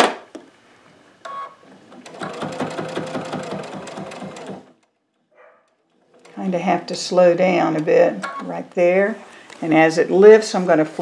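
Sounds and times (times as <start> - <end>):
sewing machine stitching: 1.6 - 4.9, 5.9 - 6.6.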